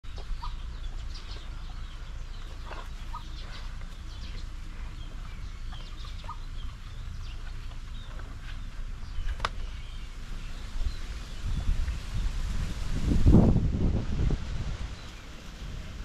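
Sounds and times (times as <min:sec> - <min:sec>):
chickens clucking: 0:00.0 - 0:12.0
birds chirping: 0:00.0 - 0:12.5
steady low rumble: 0:00.0 - 0:16.0.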